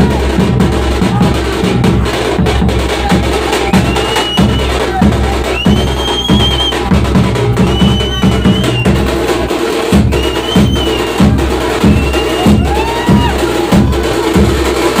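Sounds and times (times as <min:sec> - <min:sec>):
drums pounding a loud beat: 0:00.0 - 0:15.0
high sliding whistle tones: 0:03.8 - 0:04.7, 0:05.5 - 0:06.8, 0:10.1 - 0:11.2.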